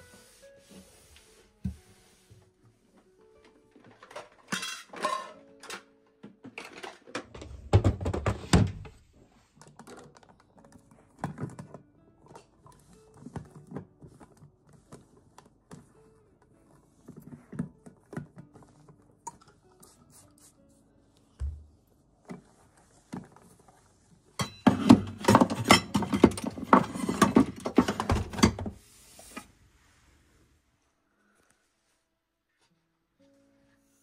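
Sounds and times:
soft background music: 0:00.0 - 0:34.0
glass and plastic parts clattering: 0:03.9 - 0:05.8, 0:24.4 - 0:28.7.

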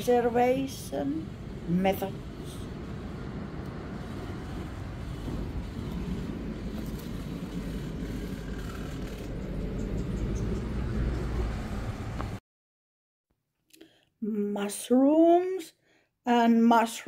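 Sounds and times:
low rumble: 0:00.0 - 0:12.4.

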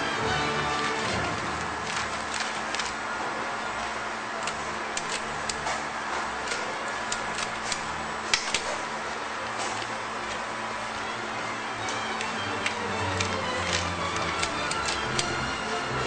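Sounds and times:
steady hum: 0:00.0 - 0:16.0
paper and cardboard rustling: 0:00.7 - 0:03.4.

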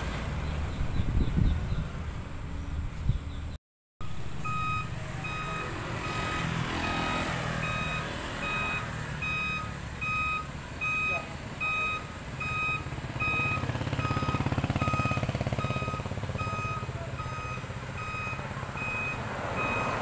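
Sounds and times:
diesel engine running: 0:04.0 - 0:20.0
motorcycle passing: 0:04.0 - 0:20.0
truck reversing alarm beeping: 0:04.0 - 0:20.0.

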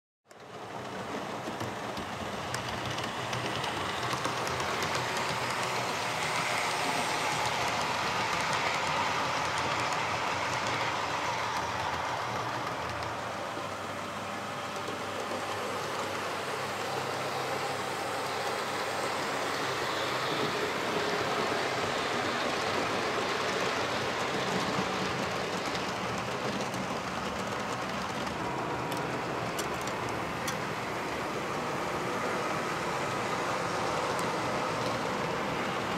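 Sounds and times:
model train motors whirring: 0:00.4 - 0:35.9.

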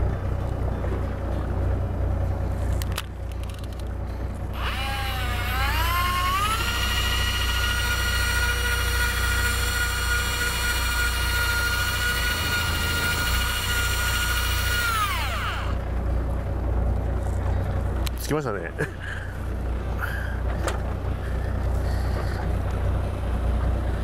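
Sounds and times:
low steady hum: 0:00.0 - 0:24.0
electric reel motor whine: 0:02.3 - 0:18.1.

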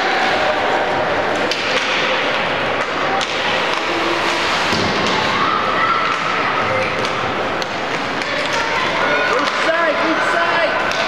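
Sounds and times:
hockey sticks and puck knocking: 0:01.4 - 0:03.9.

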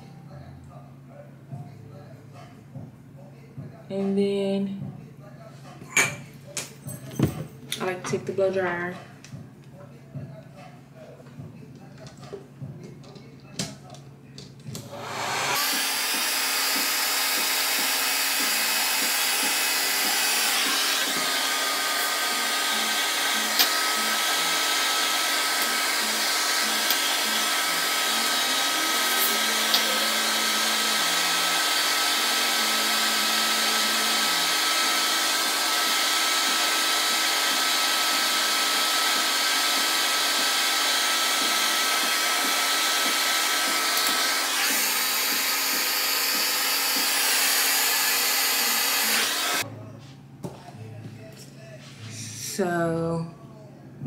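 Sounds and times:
hair dryer blowing: 0:14.8 - 0:49.6.

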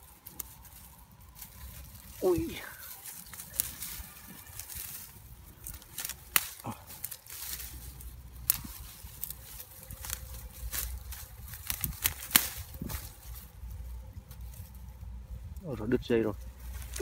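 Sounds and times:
dry grass rustling and crackling: 0:00.0 - 0:17.0
sharp snaps of straw: 0:05.6 - 0:07.6, 0:08.4 - 0:09.4, 0:10.0 - 0:13.1.

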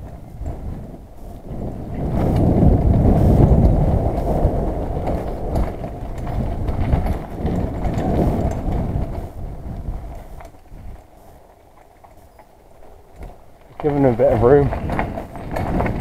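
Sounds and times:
wind on microphone: 0:00.0 - 0:11.6, 0:12.2 - 0:16.0
bike rattling over bumps: 0:00.0 - 0:16.0
bike tyre rumble on dirt: 0:00.0 - 0:16.0.

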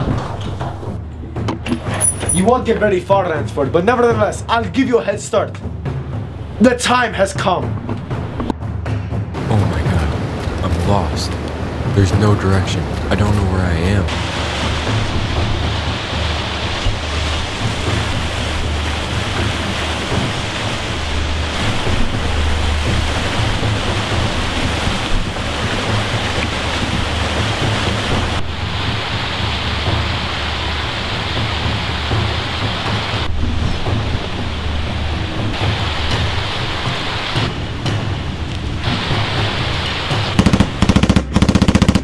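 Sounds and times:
low rumble: 0:00.0 - 0:03.4, 0:07.6 - 0:42.0
rain hiss: 0:01.7 - 0:07.2, 0:09.4 - 0:42.0.

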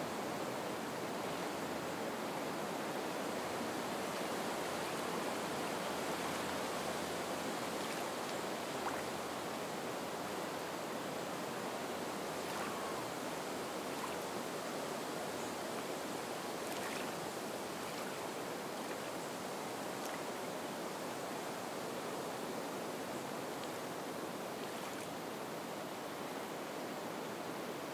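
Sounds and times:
wind over reeds: 0:00.0 - 0:27.9
water lapping the shore: 0:05.8 - 0:09.4, 0:12.2 - 0:13.2, 0:13.8 - 0:14.4, 0:16.6 - 0:20.5, 0:24.6 - 0:25.2.

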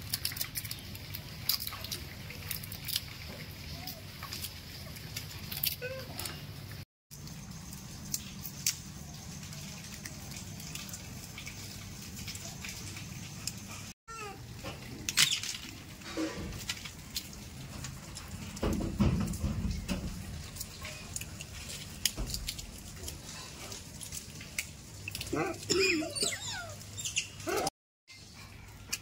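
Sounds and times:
monkey squeaky call: 0:05.6 - 0:06.4, 0:25.7 - 0:27.7.

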